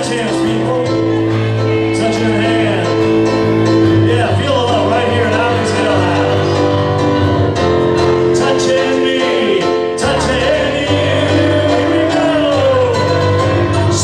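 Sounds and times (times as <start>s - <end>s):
man singing: 0.0s - 7.2s, 8.0s - 14.0s
piano music: 0.0s - 14.0s.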